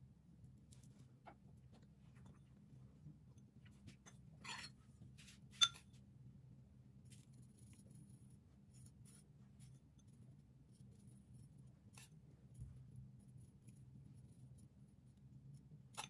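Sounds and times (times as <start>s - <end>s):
metal spoon scraping ceramic bowl: 4.1s - 4.8s.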